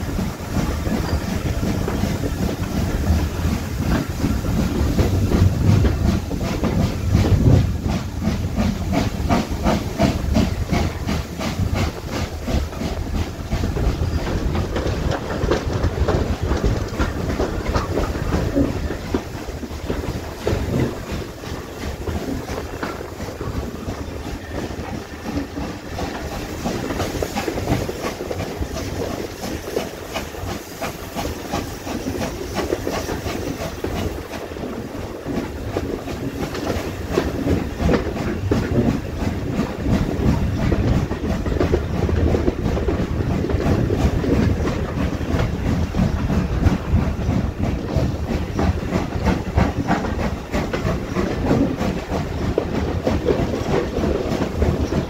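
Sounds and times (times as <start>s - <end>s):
steam hiss: 0.0s - 41.5s
train wheels clattering over rails: 0.0s - 55.0s.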